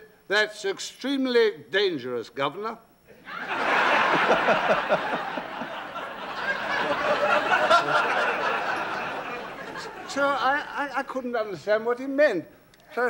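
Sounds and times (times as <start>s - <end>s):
studio audience laughing: 3.2s - 10.6s.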